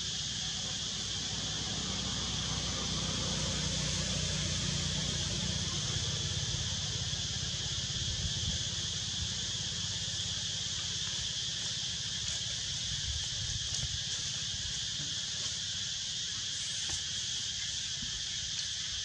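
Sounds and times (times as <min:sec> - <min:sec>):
insects buzzing: 0:00.0 - 0:19.0.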